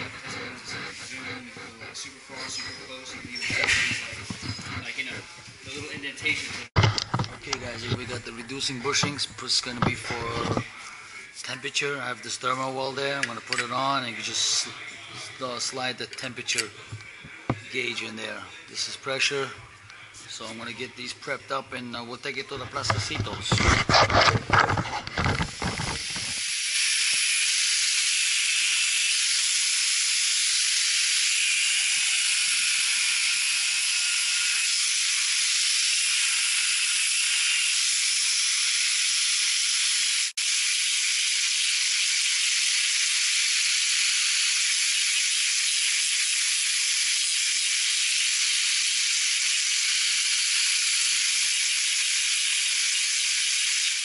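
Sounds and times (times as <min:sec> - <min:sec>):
angle grinder cutting metal: 0:00.0 - 0:10.7, 0:22.5 - 0:54.0.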